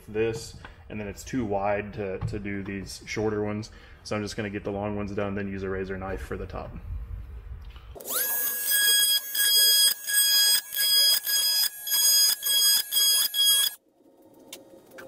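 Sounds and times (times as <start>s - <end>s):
oscillating multi-tool whine: 8.0s - 13.8s.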